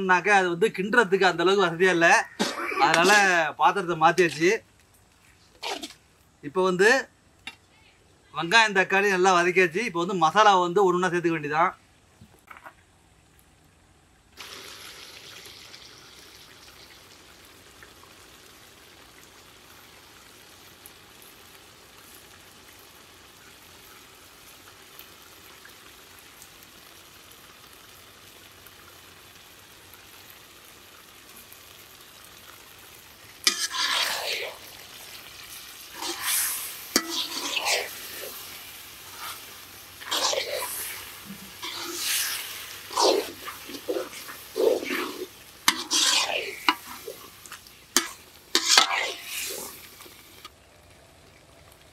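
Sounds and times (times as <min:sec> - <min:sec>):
food sizzling in a pan: 0:00.0 - 0:04.6, 0:05.6 - 0:06.4, 0:14.4 - 0:51.9
spatula stirring and scraping: 0:05.6 - 0:06.0, 0:33.4 - 0:34.7, 0:35.5 - 0:50.4.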